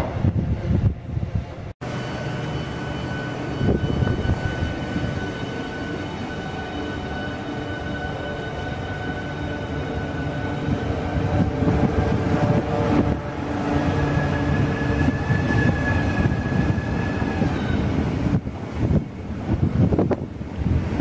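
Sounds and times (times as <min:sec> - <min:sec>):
train traction motor whine: 0:01.8 - 0:18.4.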